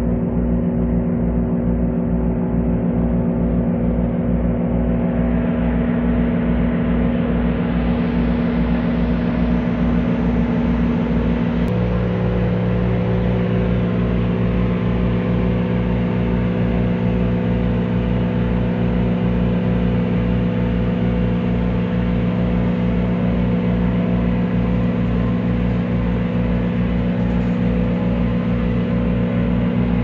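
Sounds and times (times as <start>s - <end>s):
ship engine droning: 0.0s - 30.0s.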